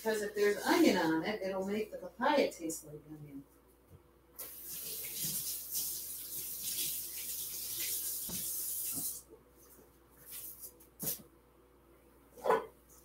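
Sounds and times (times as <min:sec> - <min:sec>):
tap water splashing: 0:04.4 - 0:09.2.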